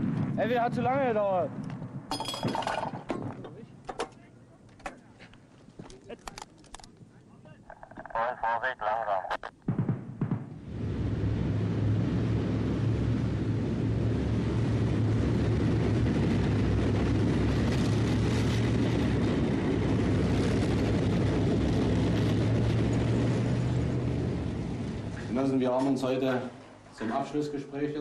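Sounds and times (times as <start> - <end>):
deep engine drone: 10.6 - 25.4
vehicle running-gear noise: 10.8 - 25.5.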